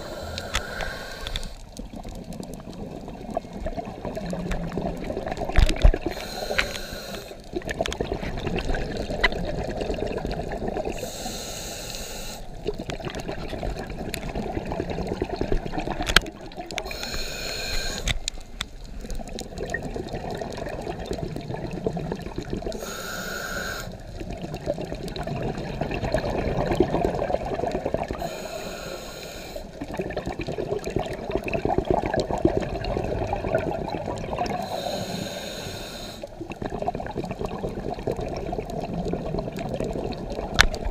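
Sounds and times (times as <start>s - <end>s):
regulator breathing hiss: 0.0s - 1.6s, 6.1s - 7.4s, 11.0s - 12.5s, 16.8s - 18.3s, 22.8s - 24.0s, 28.2s - 29.8s, 34.6s - 36.3s
low rumble of exhaled bubbles: 0.0s - 6.4s, 7.4s - 11.0s, 12.5s - 17.0s, 18.1s - 22.8s, 24.0s - 28.3s, 29.7s - 34.9s, 36.2s - 40.9s.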